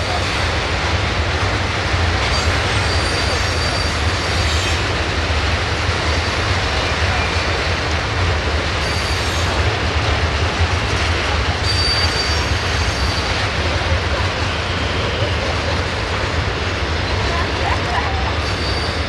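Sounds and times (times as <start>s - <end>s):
train wheels rumbling on track: 0.0s - 19.0s
faint high wheel squeal: 2.3s - 4.7s, 11.6s - 13.4s, 18.4s - 19.0s.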